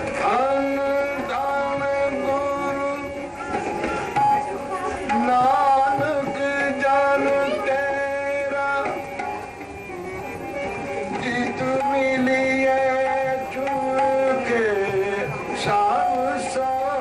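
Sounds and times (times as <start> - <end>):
harmoniums playing held notes: 0.0 - 17.0
tabla: 0.0 - 17.0.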